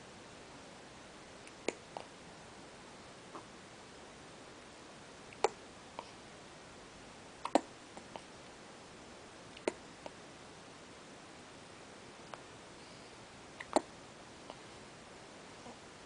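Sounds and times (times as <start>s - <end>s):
baby hiccupping: 5.4s - 5.6s, 7.4s - 7.7s, 9.6s - 9.8s, 13.6s - 13.9s.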